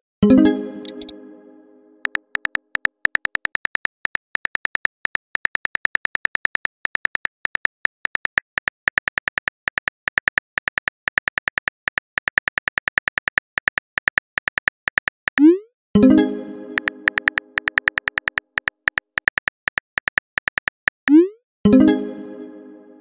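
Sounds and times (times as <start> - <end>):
phone keyboard typing clicks: 0.8 - 1.1, 2.0 - 15.5, 16.8 - 21.2.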